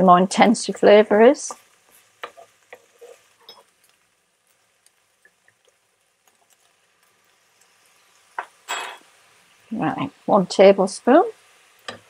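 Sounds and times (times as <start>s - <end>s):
food sizzling in a frying pan: 0.0s - 12.0s.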